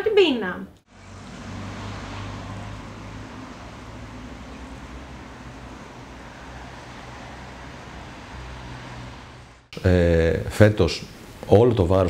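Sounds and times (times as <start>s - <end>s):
distant road traffic hum: 0.8s - 9.9s.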